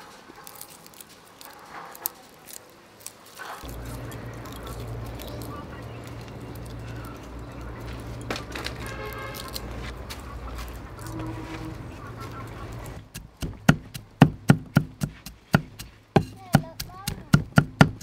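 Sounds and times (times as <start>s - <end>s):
garlic skins crackling: 0.0s - 18.0s
low hum: 3.6s - 13.6s.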